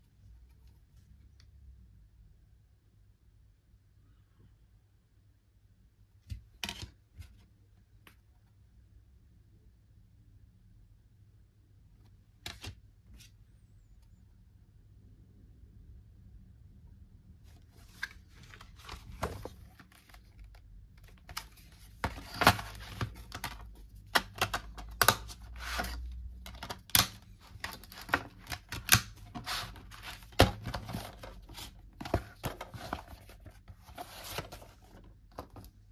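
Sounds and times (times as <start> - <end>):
plastic cases clicking: 21.0 - 33.3.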